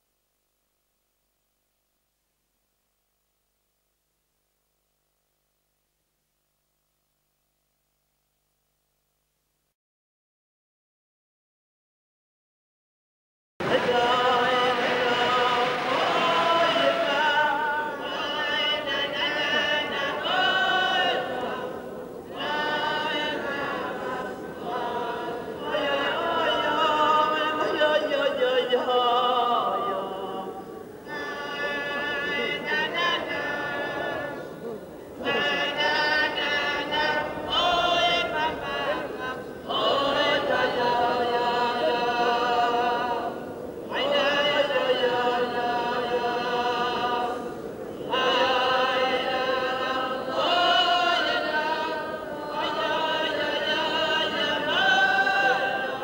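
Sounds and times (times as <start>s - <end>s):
person singing: 13.6s - 56.0s.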